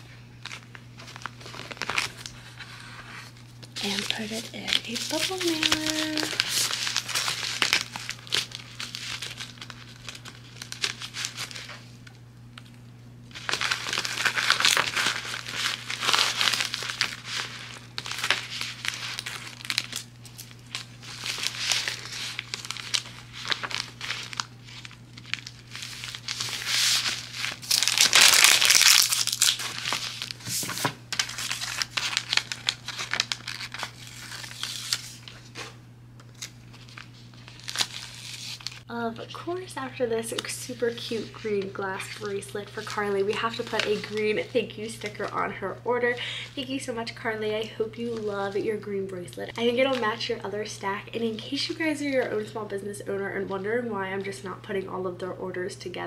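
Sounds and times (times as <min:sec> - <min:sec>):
plastic mailer crinkling: 0:00.4 - 0:11.9, 0:13.3 - 0:35.6, 0:36.2 - 0:38.9, 0:39.7 - 0:45.5.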